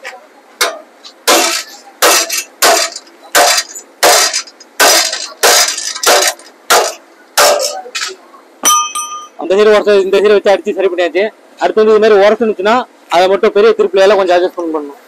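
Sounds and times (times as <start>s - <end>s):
hammer striking steel rings: 8.6s - 9.4s.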